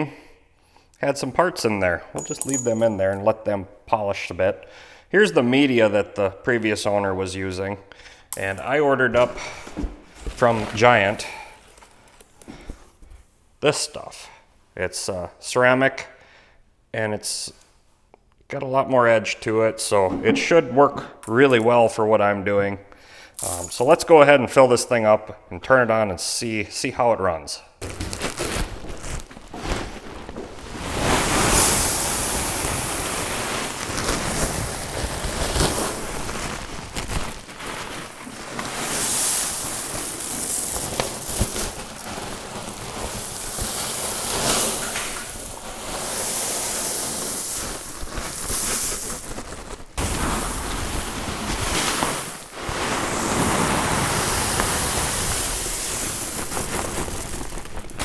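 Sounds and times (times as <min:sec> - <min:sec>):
ceramic pieces pouring rattle: 0:02.2 - 0:03.0, 0:23.4 - 0:23.8, 0:31.0 - 0:58.0.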